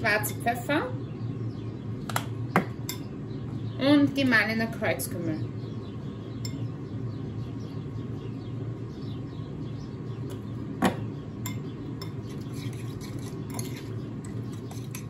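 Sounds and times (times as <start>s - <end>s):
steady low hum: 0.0s - 15.0s
mixture stirred in bowl: 12.0s - 15.0s.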